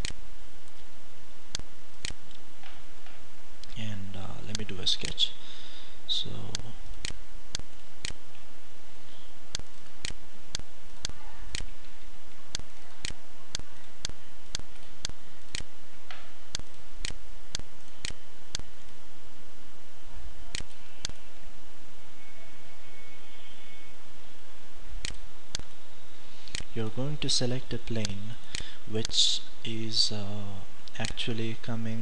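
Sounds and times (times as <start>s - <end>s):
computer mouse clicking: 9.5s - 11.9s, 16.5s - 19.0s, 20.5s - 21.2s.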